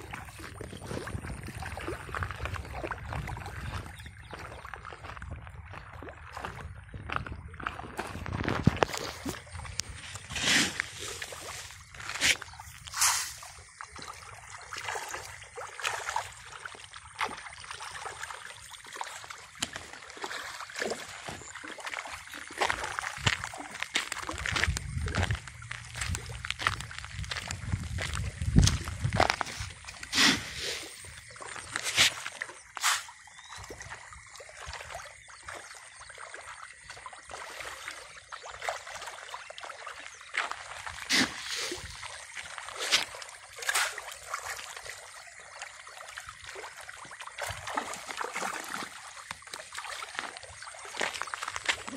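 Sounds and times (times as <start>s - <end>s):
fish splashing at water surface: 7.8s - 51.9s.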